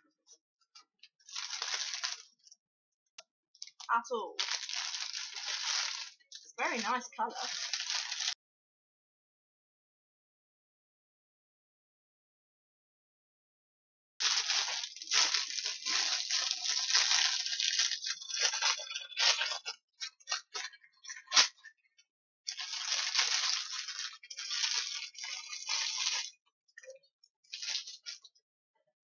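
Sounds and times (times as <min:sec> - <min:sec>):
plastic bag crinkling: 0:01.3 - 0:02.4, 0:03.6 - 0:08.4, 0:14.2 - 0:21.7, 0:22.5 - 0:26.3, 0:27.5 - 0:28.3.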